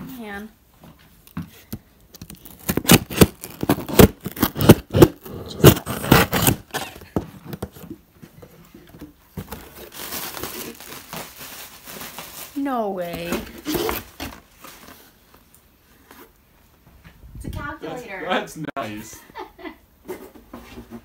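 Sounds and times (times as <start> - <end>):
packing tape slit with blade: 2.2 - 6.8
cardboard box packaging tearing: 2.2 - 7.8, 9.4 - 15.1.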